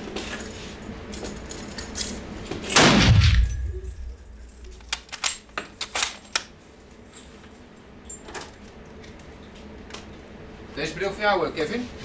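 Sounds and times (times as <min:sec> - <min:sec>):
rifle shot with echo: 0:02.8 - 0:04.1.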